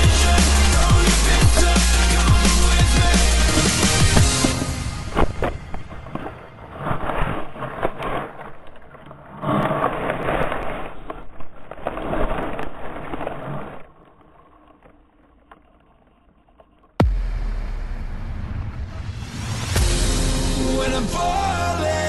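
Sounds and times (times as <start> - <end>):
rough rushing rumbling noise: 0.0 - 8.5, 17.0 - 21.6
camera tumbling knocks: 1.5 - 8.8.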